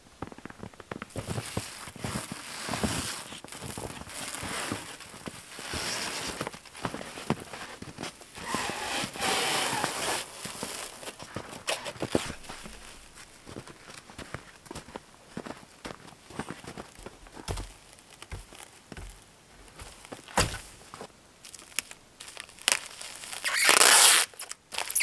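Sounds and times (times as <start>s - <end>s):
stretch film crackling: 0.2s - 13.3s, 21.4s - 25.0s
footsteps in snow: 0.3s - 24.2s.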